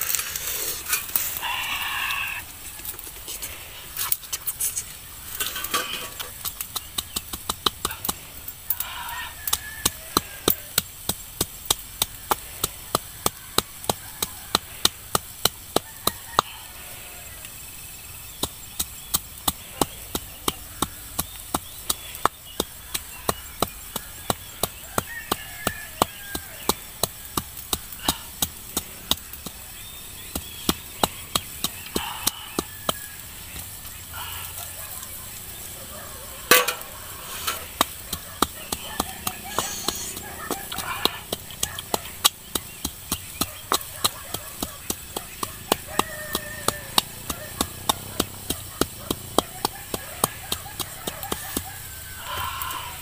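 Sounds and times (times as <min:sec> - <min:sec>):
wooden pestle pounding in bowl: 0:05.5 - 0:16.6, 0:18.3 - 0:33.8, 0:36.5 - 0:52.6.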